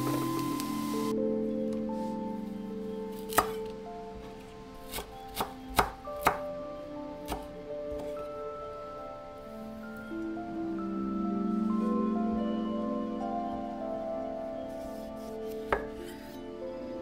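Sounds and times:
soft background music: 0.0 - 17.0
knife chopping on wooden board: 4.9 - 6.4.

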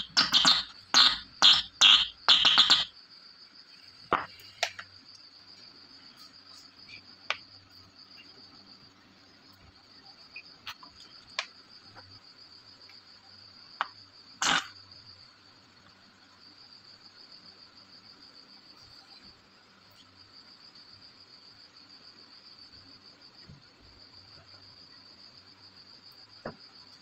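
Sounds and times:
wires clicking: 0.0 - 2.9
cricket chirping: 0.0 - 27.0.

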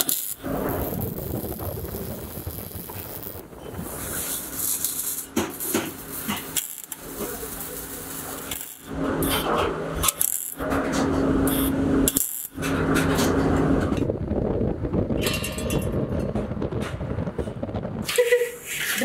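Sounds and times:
welding torch crackling: 0.0 - 15.0
steady low hum: 0.0 - 18.7.

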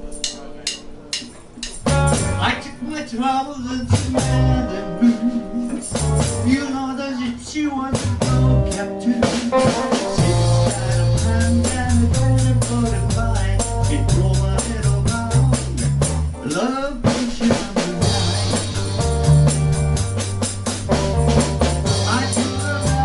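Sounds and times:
drum kit hits: 0.0 - 2.7, 3.9 - 6.7, 8.0 - 23.0
bass guitar: 0.0 - 23.0
electric guitar: 0.0 - 23.0
person singing: 2.4 - 15.8, 16.4 - 19.4, 21.9 - 23.0.

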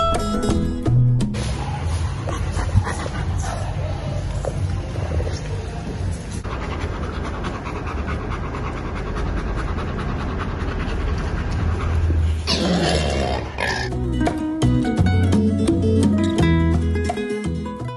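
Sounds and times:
acoustic guitar music: 0.0 - 1.5, 13.9 - 17.9
dog panting: 2.2 - 4.2, 6.3 - 12.4.

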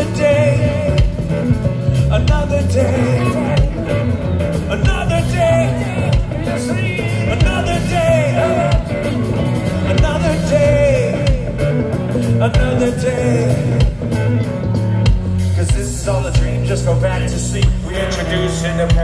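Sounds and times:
bass guitar: 0.0 - 19.0
electric guitars: 0.0 - 19.0
drum beat: 0.7 - 11.7.

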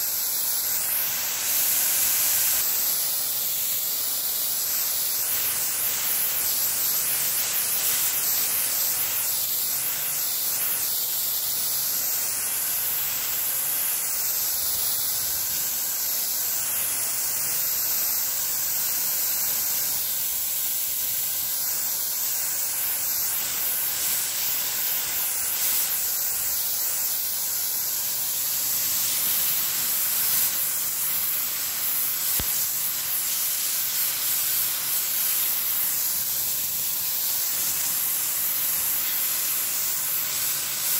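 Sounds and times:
water spray hissing: 0.0 - 40.9.

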